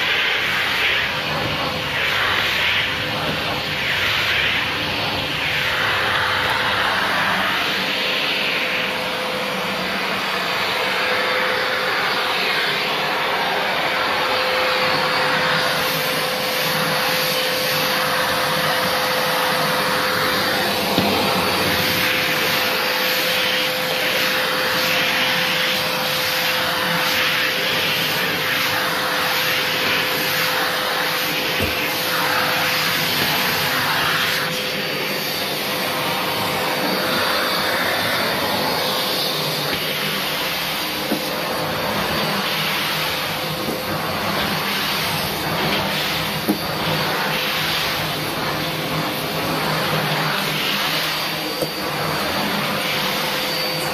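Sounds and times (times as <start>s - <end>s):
vacuum cleaner running: 0.0s - 53.9s.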